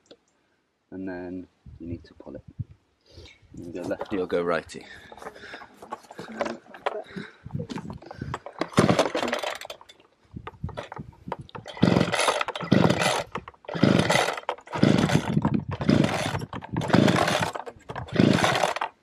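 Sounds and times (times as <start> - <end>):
engine turning over: 8.6 - 9.8, 11.6 - 19.0
recoil starter cord yanked: 10.5 - 19.0.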